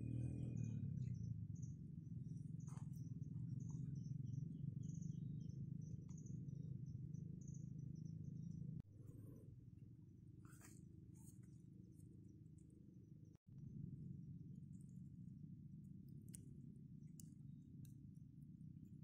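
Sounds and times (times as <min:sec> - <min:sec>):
faint low rumble: 0:00.0 - 0:19.0
insects chirping: 0:00.6 - 0:08.8.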